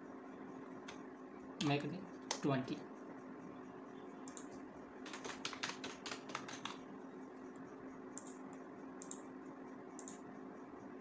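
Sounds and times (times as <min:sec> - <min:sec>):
faint steady hum: 0:00.0 - 0:11.0
typing on computer keyboard: 0:04.3 - 0:06.8.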